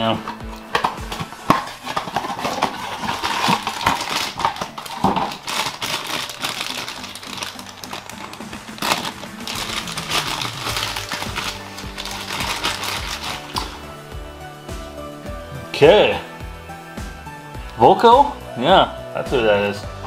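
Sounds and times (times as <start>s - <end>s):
cardboard box opening: 0.3s - 13.8s
scissors cutting foil: 0.6s - 13.8s
foil bag crinkling: 0.6s - 14.0s.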